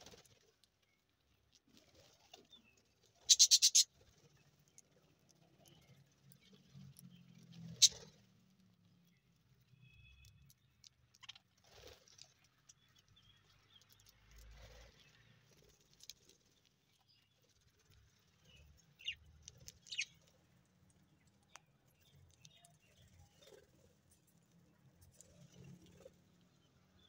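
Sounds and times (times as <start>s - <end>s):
birds rustling and pecking: 0.0s - 26.8s
high bird chirps: 3.2s - 3.9s, 7.7s - 8.2s, 19.8s - 20.2s.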